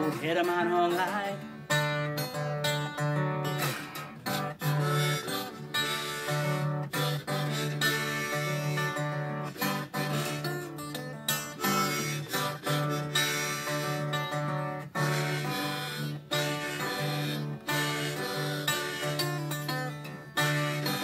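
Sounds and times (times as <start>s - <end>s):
acoustic guitar blues: 0.0s - 21.0s.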